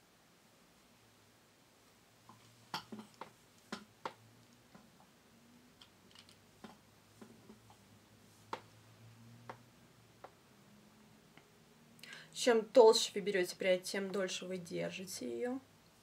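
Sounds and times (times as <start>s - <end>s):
faint steady low hum: 0.0s - 16.0s.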